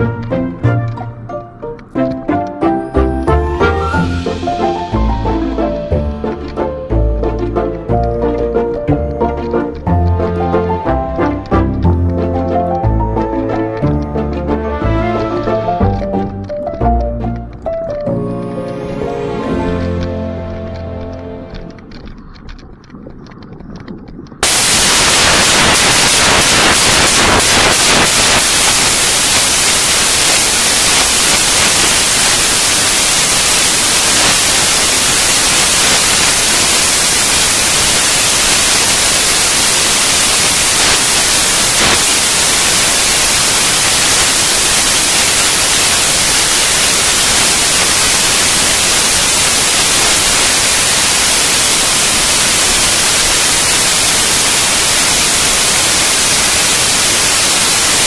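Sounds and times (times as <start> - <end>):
wind and spray rushing: 21.0 - 58.0.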